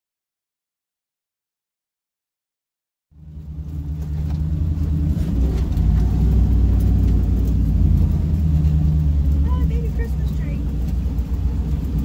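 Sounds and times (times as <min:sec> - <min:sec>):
truck engine droning: 0:03.2 - 0:12.0.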